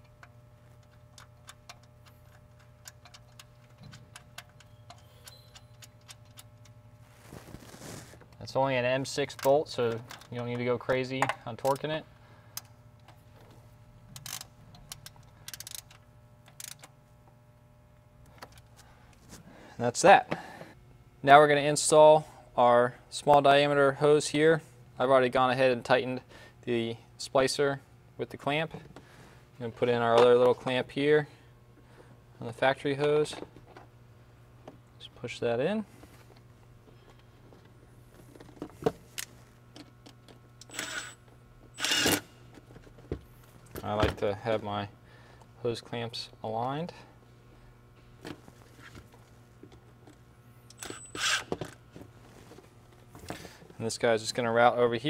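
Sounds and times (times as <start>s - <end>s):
ratchet wrench clicking: 14.2s - 16.9s
cordless driver running: 40.6s - 41.2s, 41.8s - 42.2s, 50.7s - 51.7s.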